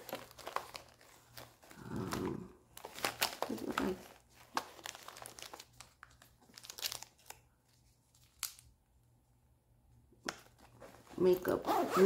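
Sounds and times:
plastic packaging crinkling: 0:00.0 - 0:08.7.

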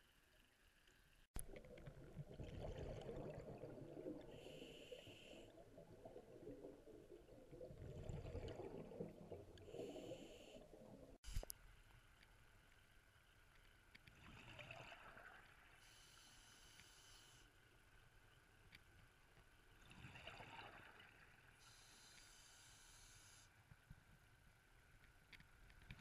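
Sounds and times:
underwater exhaled bubbles gurgling: 0:01.4 - 0:11.2
regulator inhalation hiss: 0:15.8 - 0:17.5, 0:21.6 - 0:23.5.

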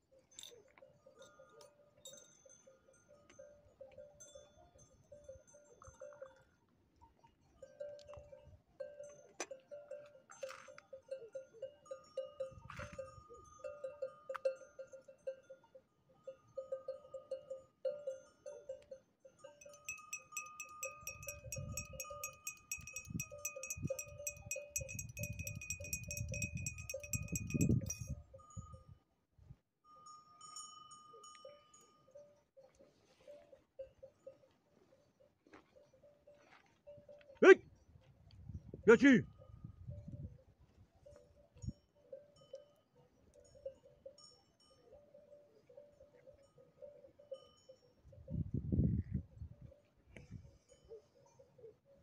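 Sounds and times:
sheep bells clinking: 0:00.0 - 0:29.1, 0:29.8 - 0:52.0
bell ringing fast: 0:19.4 - 0:28.5.

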